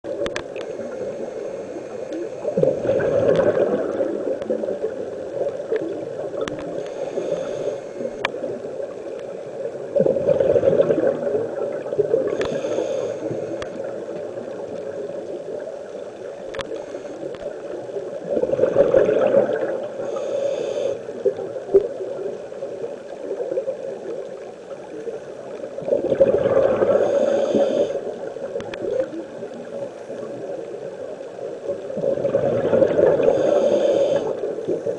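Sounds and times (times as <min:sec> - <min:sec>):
inhaled air hissing: 0:00.1 - 0:02.8, 0:06.6 - 0:08.6, 0:12.2 - 0:14.1, 0:19.9 - 0:21.4, 0:26.8 - 0:28.3, 0:33.1 - 0:34.9
steady underwater hiss: 0:00.1 - 0:34.9
exhaled bubbles gushing: 0:02.2 - 0:06.8, 0:09.9 - 0:12.6, 0:18.0 - 0:20.0, 0:25.8 - 0:27.3, 0:31.7 - 0:34.9.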